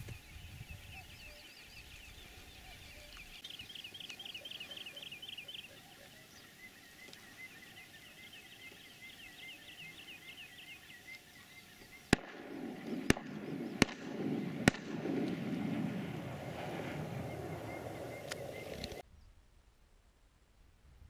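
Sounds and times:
faint bird calls: 0.0s - 14.7s, 15.4s - 19.0s
shotgun shots: 12.1s - 19.0s.

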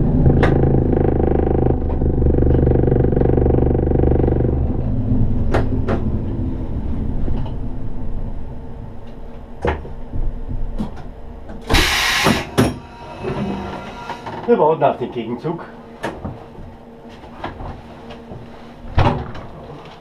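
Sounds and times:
low rumble: 0.0s - 11.6s
train traction motors humming: 0.0s - 14.8s
loud air hiss: 11.7s - 14.3s.

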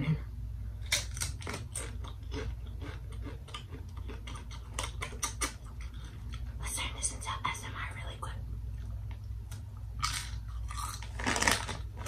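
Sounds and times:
crunching tortilla chips: 0.8s - 6.5s, 10.0s - 12.0s.

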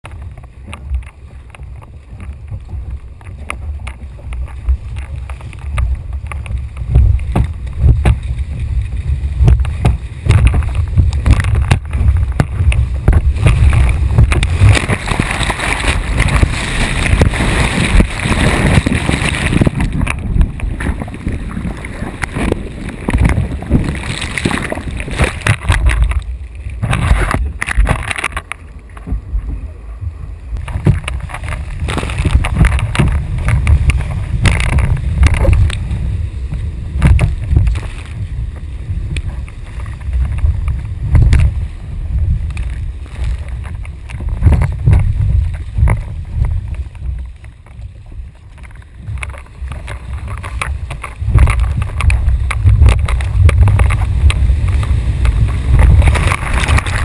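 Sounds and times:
water splashing: 0.0s - 57.0s
wind buffeting microphone: 0.0s - 57.0s
whitewater rushing: 4.0s - 28.5s, 48.6s - 57.0s.

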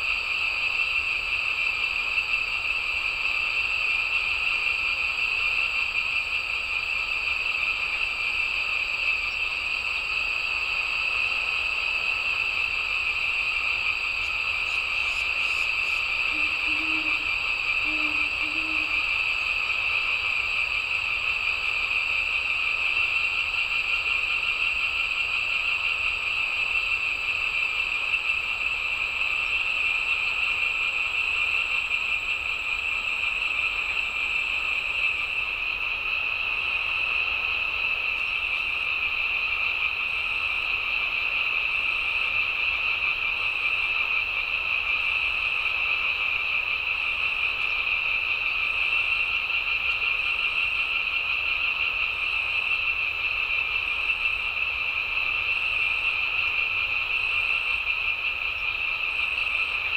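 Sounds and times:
frogs calling: 0.0s - 59.9s
insects calling: 0.0s - 59.9s.

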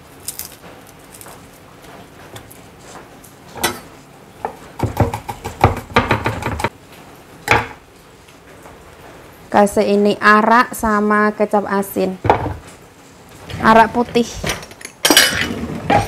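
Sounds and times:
dishes and utensils clinking: 3.6s - 4.0s, 13.5s - 16.0s.

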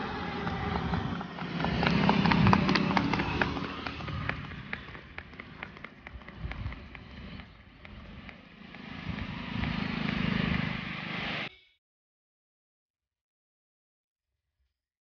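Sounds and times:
horse hooves clopping on asphalt: 0.0s - 11.1s
car driving past: 0.0s - 11.5s.

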